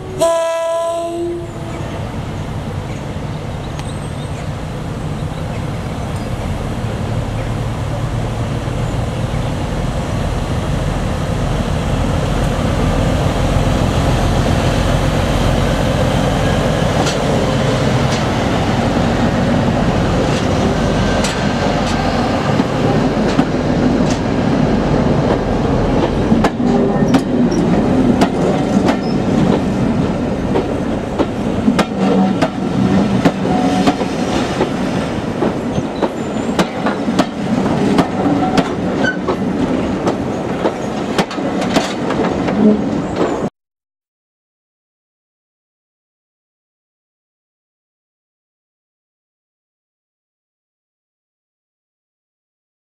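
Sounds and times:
diesel locomotive engine rumble: 0:00.0 - 0:43.5
wheels clicking over rail joints: 0:25.2 - 0:43.4.

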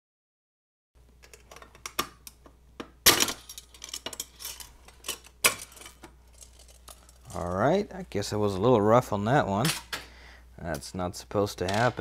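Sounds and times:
metal shield clicking and rattling: 0:03.0 - 0:07.4.

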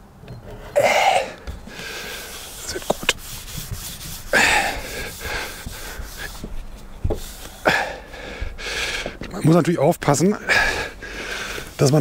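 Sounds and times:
man breathing heavily: 0:00.5 - 0:02.9, 0:04.2 - 0:09.3, 0:10.4 - 0:11.8
short knocks: 0:02.8 - 0:07.4.

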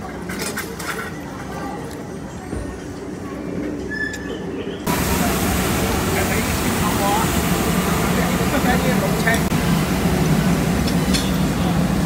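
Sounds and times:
restaurant background noise: 0:00.0 - 0:12.0
street-sweeper truck running: 0:04.8 - 0:12.0.

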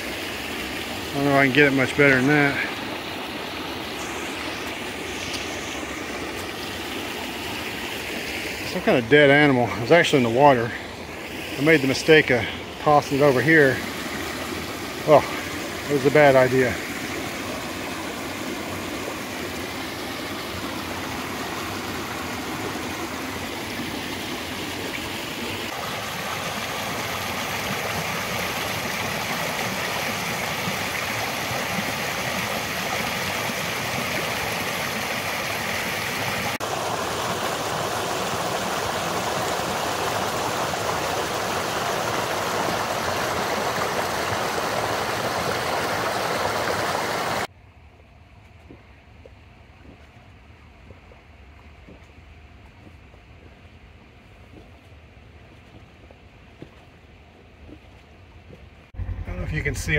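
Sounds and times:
water rushing through pipe: 0:00.0 - 0:47.5.

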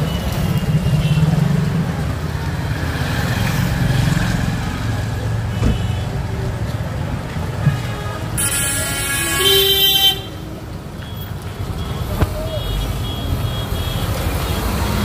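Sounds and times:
road traffic rumbling: 0:00.0 - 0:15.0
vehicle horn honking: 0:07.7 - 0:10.4.

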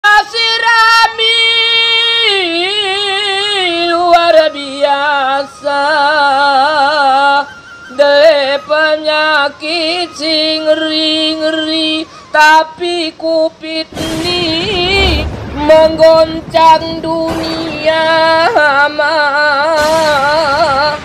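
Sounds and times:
man singing unaccompanied: 0:00.0 - 0:21.0
man breathing: 0:12.0 - 0:12.4.

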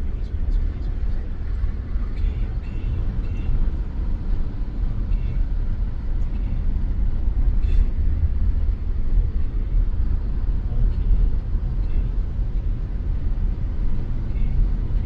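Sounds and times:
low rumble inside car cabin: 0:00.0 - 0:15.0.

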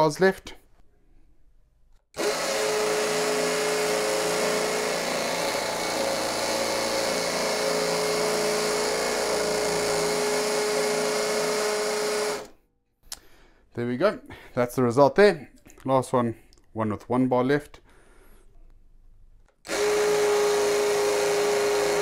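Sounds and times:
impact drill drilling into brick: 0:02.2 - 0:12.6, 0:19.7 - 0:22.0.

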